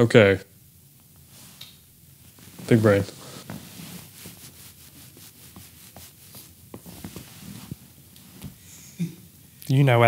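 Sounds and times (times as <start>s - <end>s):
faint rustling: 1.1s - 8.8s.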